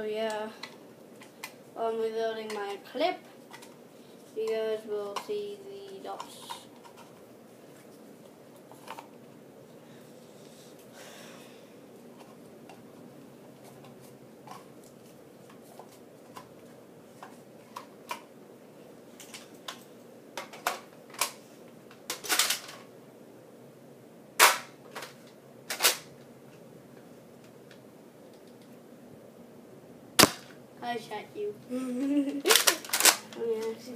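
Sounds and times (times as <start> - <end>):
toy blaster firing snaps: 24.4 - 24.7, 30.2 - 30.5
plastic clicks of toy blaster: 32.5 - 33.3.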